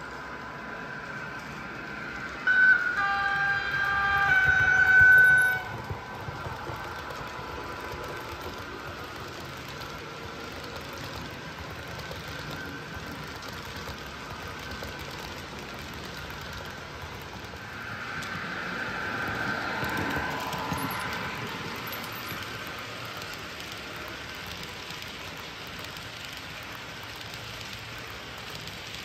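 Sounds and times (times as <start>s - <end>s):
model train running noise: 0.0s - 29.0s
multi-tone model train horn: 2.5s - 5.8s.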